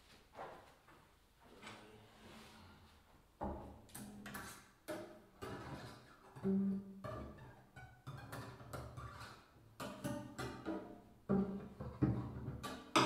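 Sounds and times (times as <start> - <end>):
bowed double bass notes: 9.8 - 12.6.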